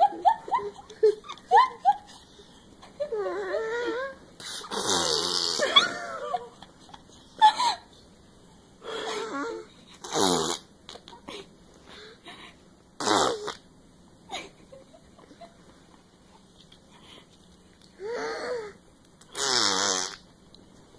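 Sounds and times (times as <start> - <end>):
toddler blowing fart noises: 4.4 - 5.7, 10.0 - 10.7, 13.0 - 13.6, 19.3 - 20.2.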